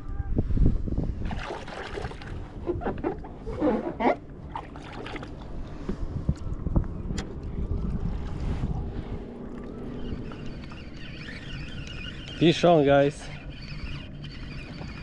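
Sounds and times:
water lapping against hull: 1.2s - 6.1s, 8.2s - 15.0s.

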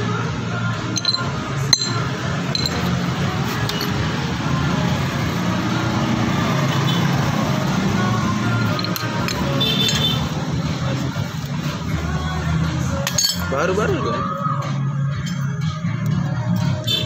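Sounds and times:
metallic clinks of tools: 1.0s - 2.9s, 3.6s - 4.0s, 8.6s - 10.1s, 13.0s - 13.5s.

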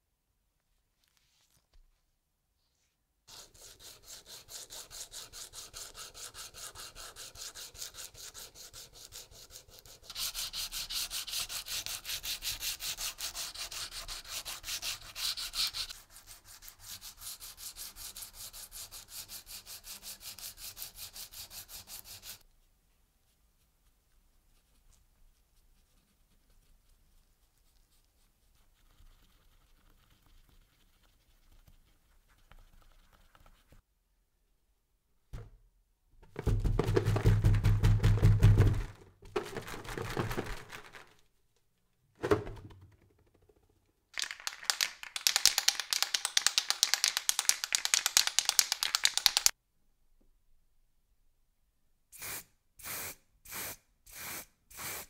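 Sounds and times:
hand sanding metal: 3.3s - 22.4s.

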